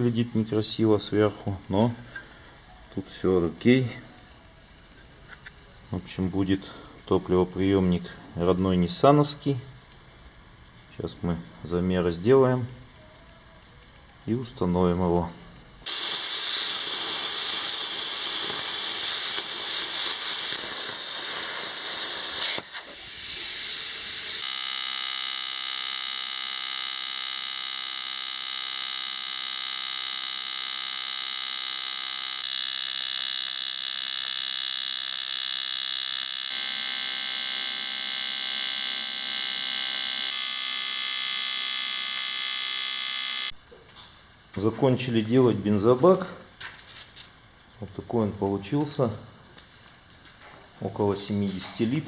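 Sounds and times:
welding arc buzzing: 15.8s - 52.0s
angle grinder cutting metal: 15.9s - 24.4s, 31.7s - 43.5s.

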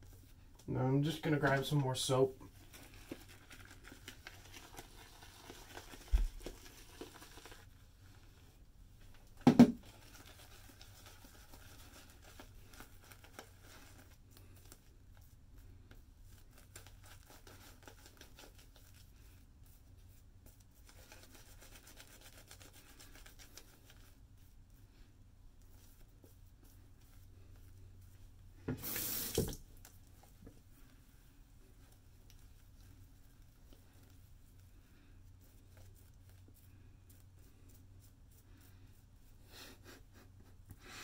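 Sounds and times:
knock: 9.4s - 9.8s
shaving brush swishing lather: 16.2s - 24.8s, 31.6s - 40.6s.

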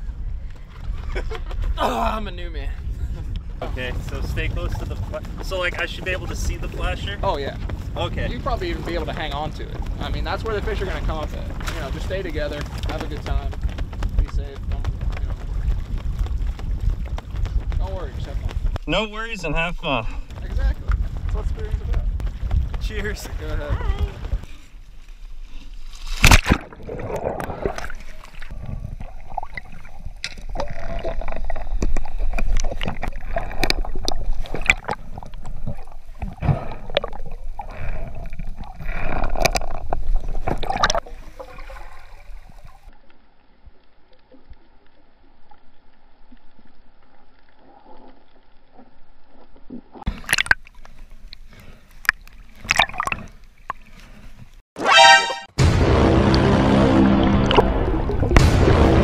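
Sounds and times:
water sloshing and gurgling: 14.8s - 54.6s, 55.8s - 59.0s
bubbles and splashes: 25.8s - 54.6s, 56.2s - 59.0s.

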